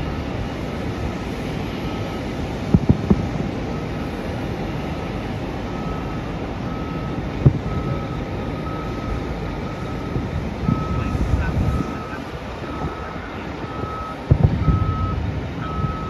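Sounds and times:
distant fireworks booming: 0.0s - 4.4s, 7.1s - 8.2s, 14.0s - 16.0s
steady low rumble: 0.0s - 16.0s
vehicle reversing alarm beeping: 0.0s - 16.0s.

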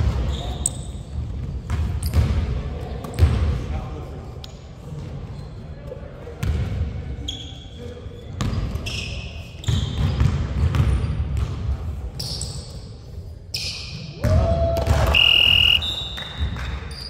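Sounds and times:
basketball bouncing on gym floor: 0.0s - 3.5s, 6.4s - 6.8s, 8.4s - 8.9s, 9.6s - 11.8s.

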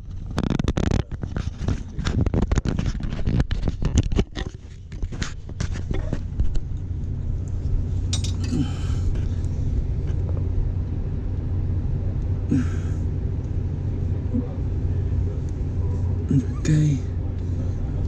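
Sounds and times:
low machinery hum: 0.0s - 18.0s
clicks and clinks of handling: 8.1s - 8.6s.

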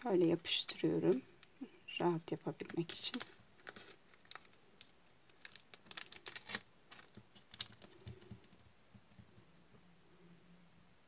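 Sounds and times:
adhesive tape clicks and crackles: 2.6s - 9.2s.

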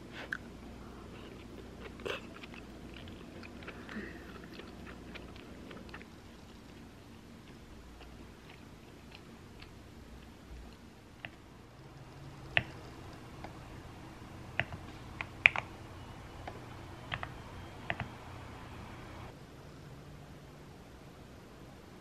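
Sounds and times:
faint low hum: 0.0s - 22.0s.

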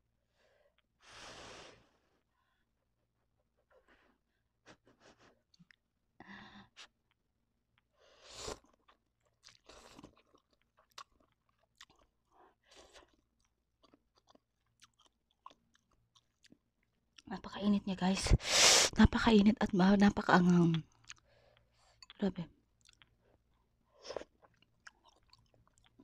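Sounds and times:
chewing: 8.6s - 17.3s, 20.7s - 22.2s, 22.8s - 26.0s.

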